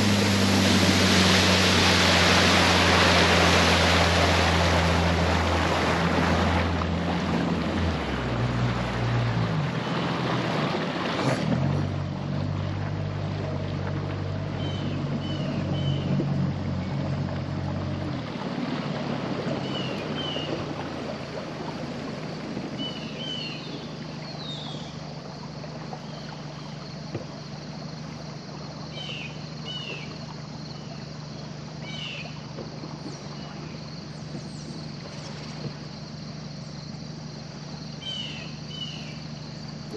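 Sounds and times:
outboard motor running: 0:00.0 - 0:39.9
birds chirping: 0:19.6 - 0:20.7, 0:28.8 - 0:32.4, 0:37.9 - 0:39.9.

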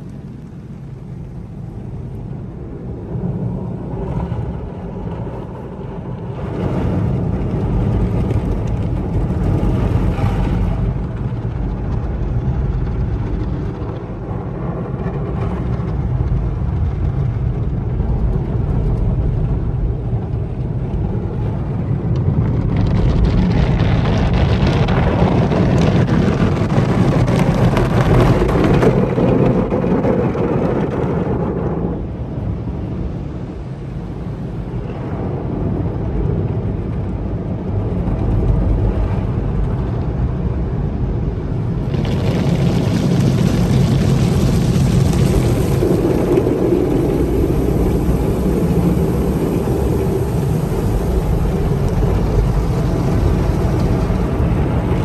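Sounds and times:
car wash water spraying: 0:41.8 - 0:55.0.

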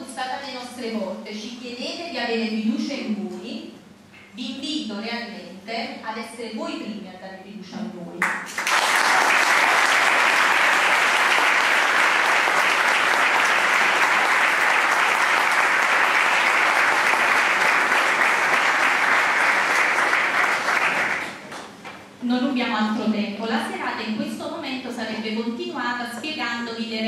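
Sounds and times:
audience applauding: 0:08.4 - 0:21.8.

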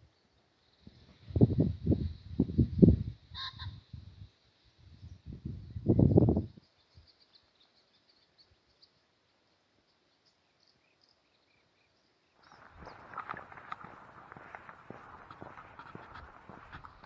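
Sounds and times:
small birds chirping: 0:00.0 - 0:17.0
pheasant harsh call: 0:03.3 - 0:03.8
noisy rustling: 0:12.4 - 0:17.0.

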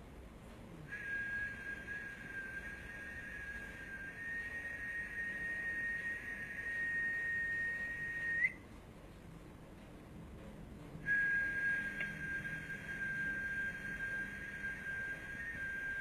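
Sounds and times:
high-pitched whistled tone: 0:00.9 - 0:08.6, 0:11.0 - 0:16.0.

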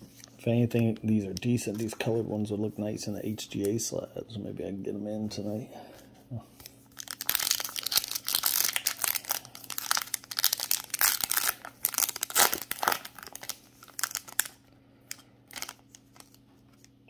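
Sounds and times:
foil wrapper crinkling: 0:06.6 - 0:16.9.

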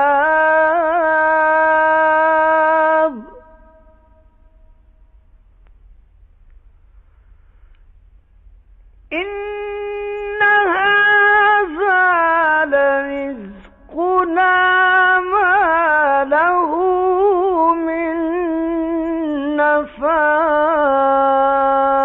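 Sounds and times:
man chanting recitation: 0:00.0 - 0:03.8, 0:09.1 - 0:22.0.

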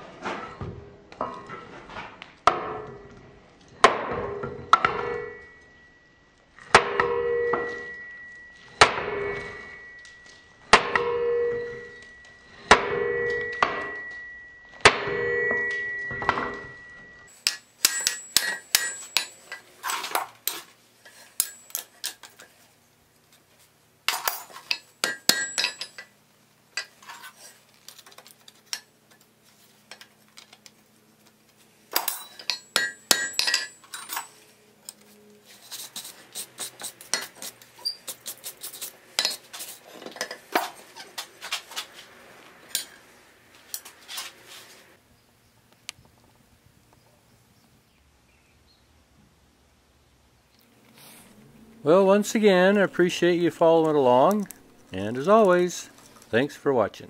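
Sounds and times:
hammer striking steel on anvil: 0:06.7 - 0:19.7, 0:21.3 - 0:22.2, 0:24.1 - 0:26.1, 0:32.0 - 0:34.3.

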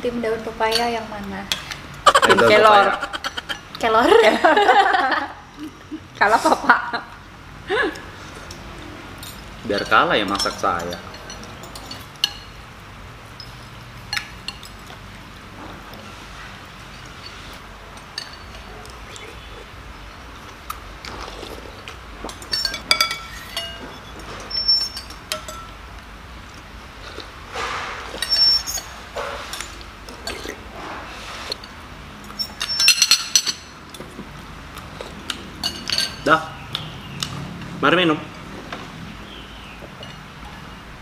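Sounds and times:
cutlery clinking on ceramic bowls: 0:08.3 - 0:12.6, 0:13.4 - 0:15.0, 0:16.9 - 0:19.0, 0:22.2 - 0:25.8, 0:28.1 - 0:30.6, 0:31.6 - 0:34.2, 0:35.2 - 0:36.9, 0:39.8 - 0:40.7.

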